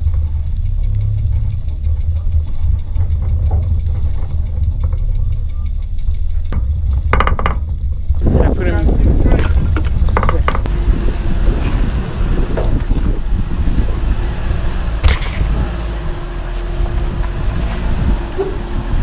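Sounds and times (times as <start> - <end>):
creaks clicks and knocks: 0.0 - 8.3, 9.1 - 10.7
vehicle engine low rumble: 0.0 - 19.0.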